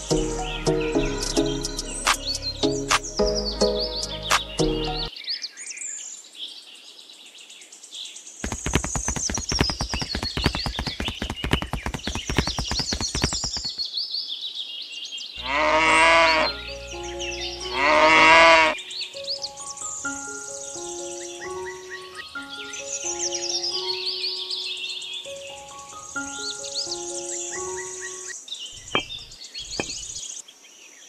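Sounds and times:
light background music: 0.0s - 5.1s, 16.2s - 28.3s
birds chirping: 0.0s - 5.6s, 8.4s - 14.6s, 15.3s - 30.5s
rapid clicks: 8.4s - 13.8s
farm animal calls: 15.4s - 16.7s, 17.6s - 18.8s.

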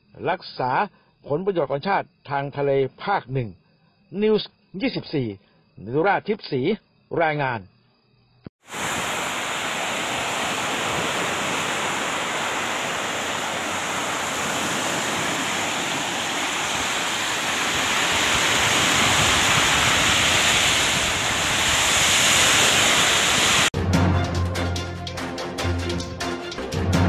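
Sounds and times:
small waves breaking on beach: 8.6s - 23.7s.

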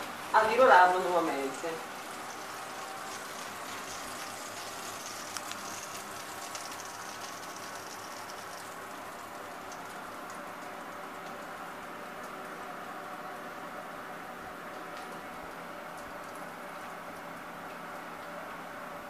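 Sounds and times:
chicken sizzling in a tray: 0.0s - 11.9s.

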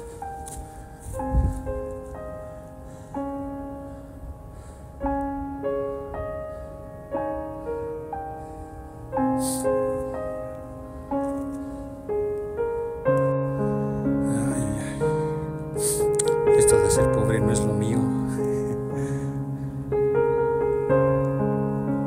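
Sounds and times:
piano chords: 0.0s - 22.0s.

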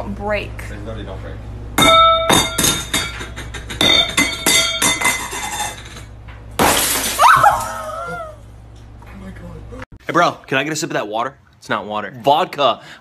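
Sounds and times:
plate shattering: 1.8s - 7.9s.

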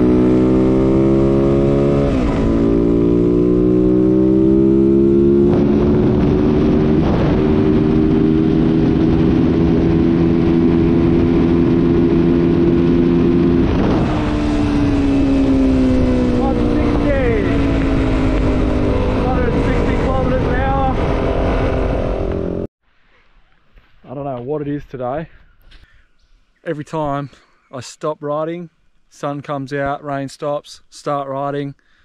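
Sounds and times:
motorcycle engine accelerating: 0.0s - 22.7s.

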